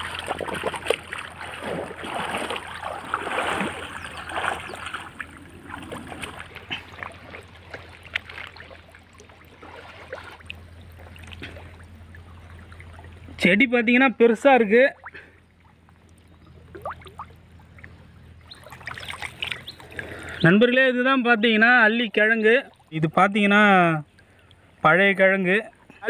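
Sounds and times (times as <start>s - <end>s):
water splashing around wader: 0.0s - 13.4s, 14.9s - 20.5s.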